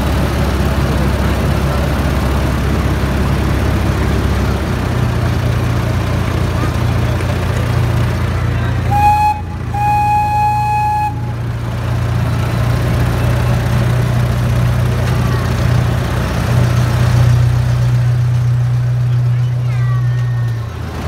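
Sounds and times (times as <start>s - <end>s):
locomotive engine humming: 0.0s - 21.0s
miniature train horn toot: 8.9s - 11.4s.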